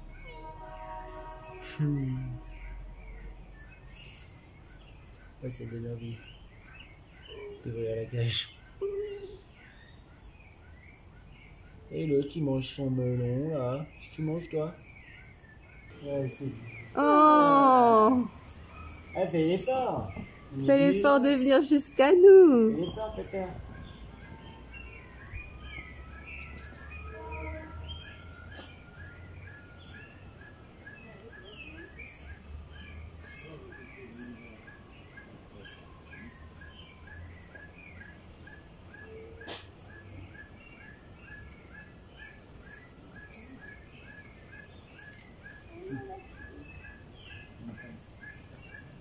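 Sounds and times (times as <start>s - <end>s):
steady low rumble: 0.0s - 5.4s
low bird call: 0.0s - 10.1s
higher bird calls: 0.0s - 10.3s
small birds chirping: 0.0s - 49.0s.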